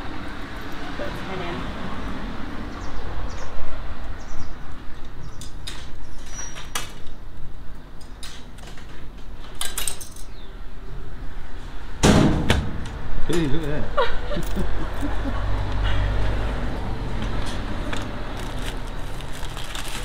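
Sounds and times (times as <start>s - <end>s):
coins clinking into coin slot: 9.6s - 10.3s
loud knock: 12.0s - 13.0s.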